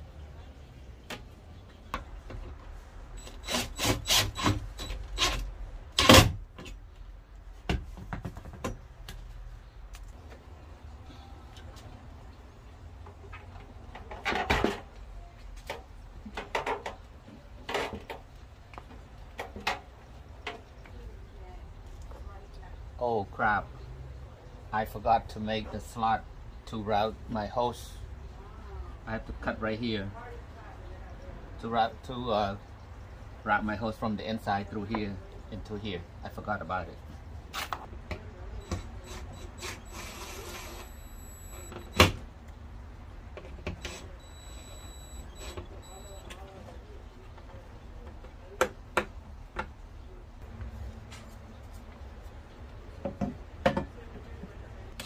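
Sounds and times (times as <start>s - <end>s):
hard objects knocking and clattering: 7.6s - 9.2s, 53.0s - 54.0s.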